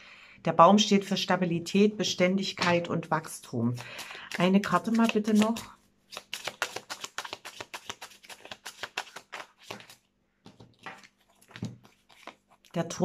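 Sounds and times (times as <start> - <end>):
cards being shuffled: 3.8 - 12.7
soft card handling sounds: 3.8 - 12.8.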